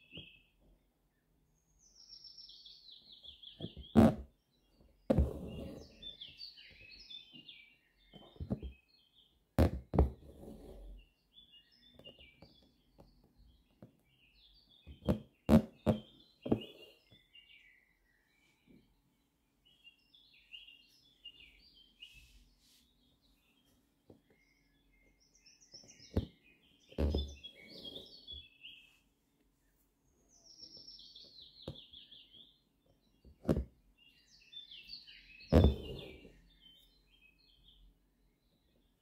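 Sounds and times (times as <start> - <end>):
small birds chirping: 0.0 - 39.0
needle knocking through fabric: 5.1 - 5.8, 8.2 - 8.8, 9.6 - 10.8, 14.9 - 16.8, 33.4 - 33.8, 35.5 - 36.2.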